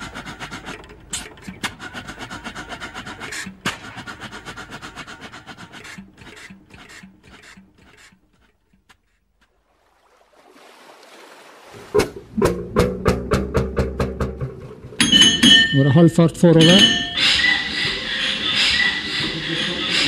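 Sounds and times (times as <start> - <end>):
old boat engine running: 0.0 - 8.9, 11.9 - 15.9.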